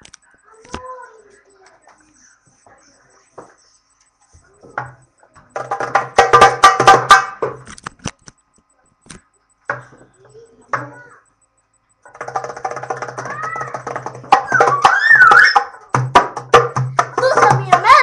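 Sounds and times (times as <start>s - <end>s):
goblet drum struck by hand: 4.8s - 7.6s, 12.1s - 18.0s.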